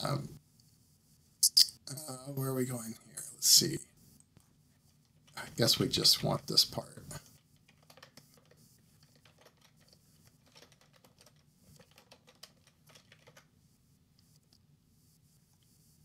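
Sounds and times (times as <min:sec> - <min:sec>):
keyboard typing: 0:07.2 - 0:13.5.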